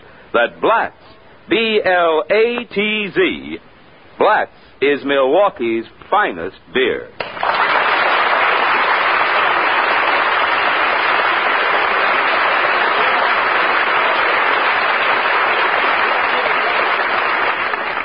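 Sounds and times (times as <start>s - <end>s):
audience applauding: 7.2s - 18.0s.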